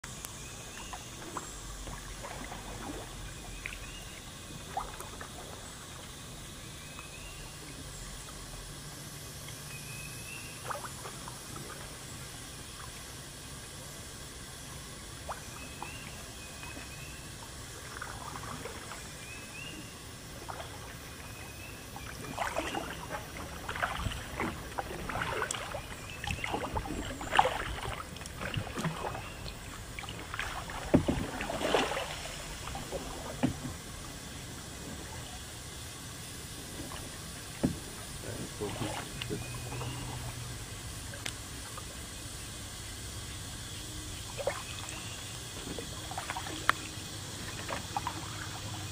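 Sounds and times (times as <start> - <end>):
water trickling and dripping: 0.2 - 6.3, 22.0 - 35.9
paddle splashing water: 0.6 - 7.6, 10.2 - 12.1, 15.2 - 35.8, 36.4 - 42.0, 44.2 - 48.9.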